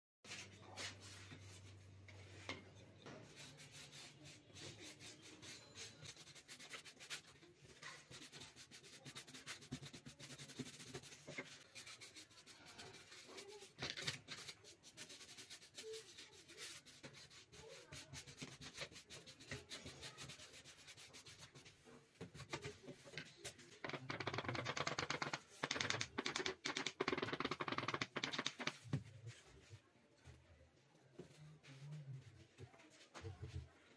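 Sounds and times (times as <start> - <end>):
brush rubbing on foam: 3.3 - 22.5
clicks and taps: 23.8 - 28.9.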